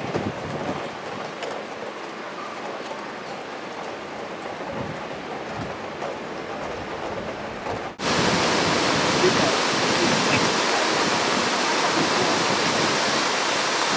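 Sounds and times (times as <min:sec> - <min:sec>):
steady rain falling: 0:00.0 - 0:13.9
hissy rushing sound: 0:08.0 - 0:13.9.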